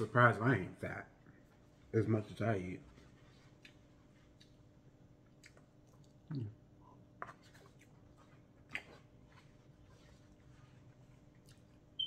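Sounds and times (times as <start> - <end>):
quiet chewing: 3.0 - 12.0.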